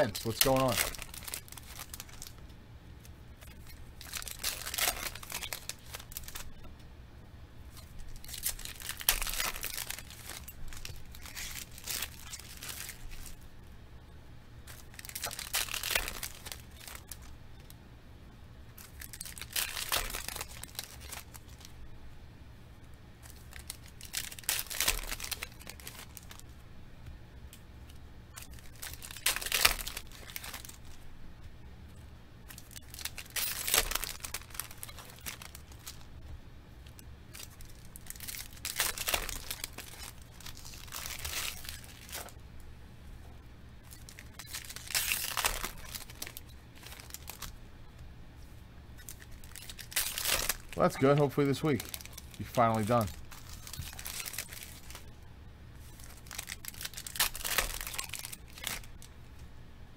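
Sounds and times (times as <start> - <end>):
foil wrappers tearing and crinkling: 0.0 - 2.4, 3.4 - 6.6, 7.7 - 13.4, 14.6 - 17.3, 18.8 - 21.7, 23.2 - 26.5, 28.3 - 31.0, 32.5 - 36.1, 36.9 - 42.4, 43.8 - 47.6, 49.0 - 55.1, 55.8 - 59.1.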